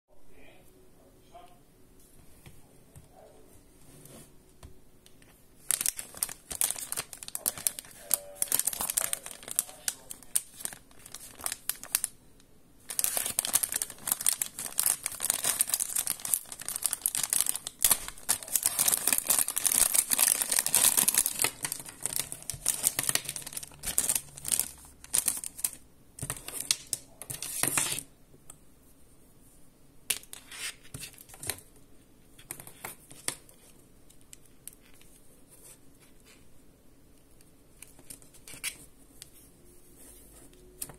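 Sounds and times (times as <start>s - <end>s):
plastic bag crinkling: 5.6s - 12.2s, 12.8s - 28.0s.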